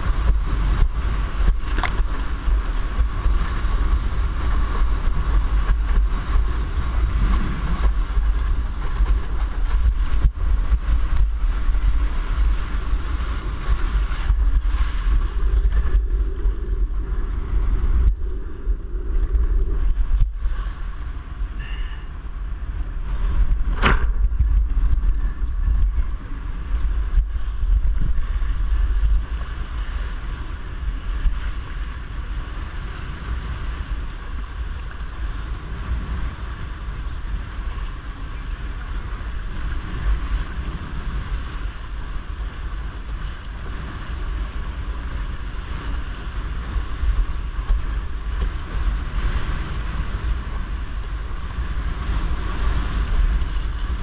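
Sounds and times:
low rumble: 0.0s - 54.0s
wind buffeting microphone: 0.0s - 54.0s
sharp knock: 23.7s - 24.2s.

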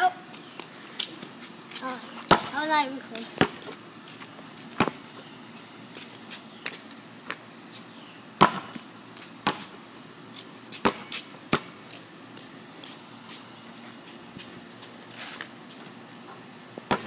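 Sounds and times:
basketball bouncing on concrete: 2.3s - 3.8s, 4.7s - 5.2s, 8.4s - 9.8s, 10.7s - 11.8s.

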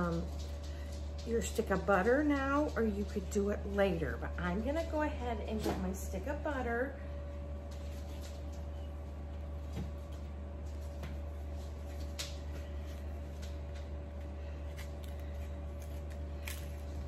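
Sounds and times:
low hum: 0.0s - 17.0s
paper wrapper crinkling: 12.8s - 17.0s.

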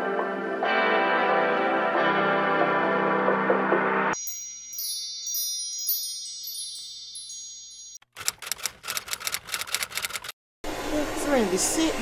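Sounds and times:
background music: 0.0s - 4.8s
shimmering chime: 4.2s - 8.0s.

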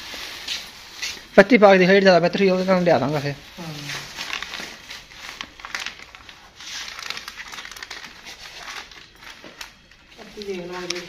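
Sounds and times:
plastic bags rustling and crinkling: 0.0s - 11.0s.

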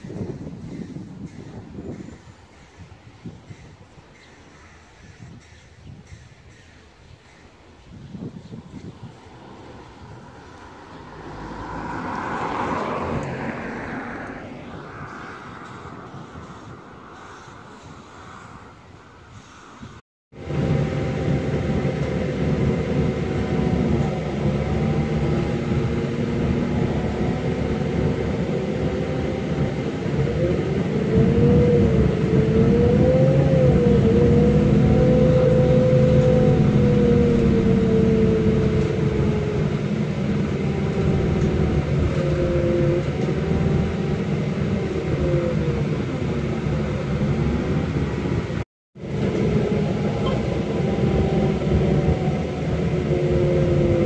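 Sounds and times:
road noise: 0.0s - 54.0s
car engine: 9.0s - 17.3s, 20.4s - 54.0s.

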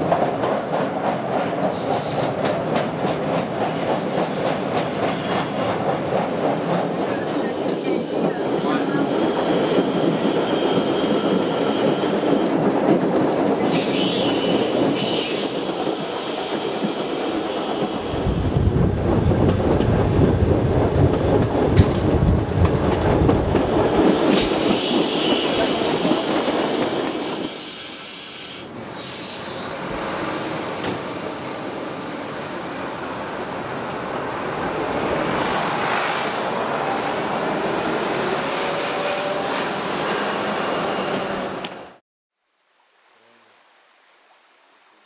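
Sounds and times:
train wheels clattering on rails: 0.0s - 28.0s
high wheel squeal: 13.7s - 16.8s, 24.3s - 26.1s.

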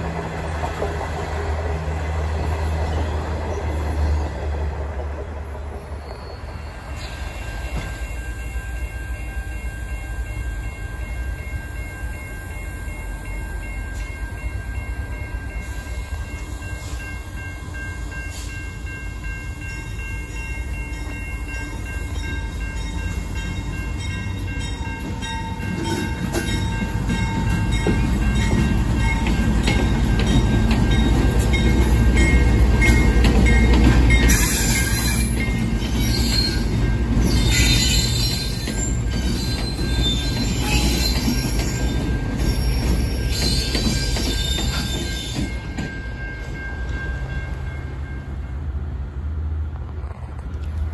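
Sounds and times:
locomotive engine rumble: 0.0s - 7.9s
train wheels clicking: 0.0s - 8.0s, 19.9s - 48.3s.

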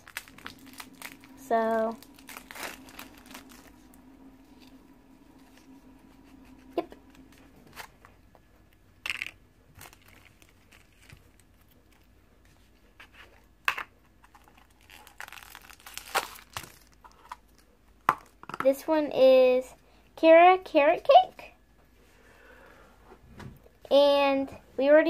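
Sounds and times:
plastic wrapper crinkling: 0.0s - 4.8s, 9.0s - 12.1s, 14.2s - 17.7s.

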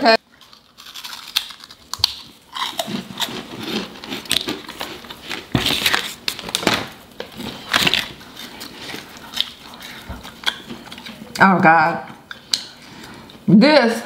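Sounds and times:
crunching and chewing snacks: 0.2s - 11.3s
plastic bag crinkling: 0.4s - 11.1s.

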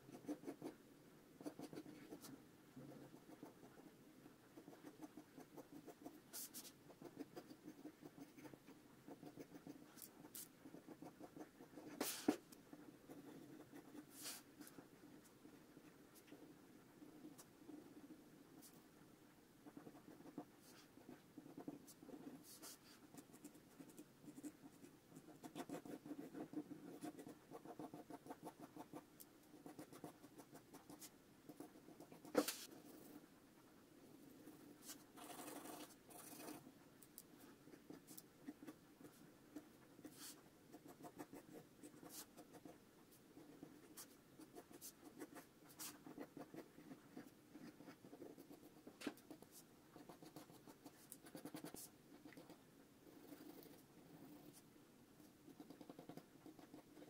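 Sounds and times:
pencil scratching on paper: 0.0s - 0.8s, 1.4s - 3.9s, 4.6s - 18.8s, 19.6s - 33.2s, 34.2s - 36.7s, 37.4s - 54.7s, 55.5s - 57.0s
pencil rubbing shading: 4.6s - 15.4s, 19.6s - 33.2s, 34.2s - 36.7s, 37.4s - 54.6s.

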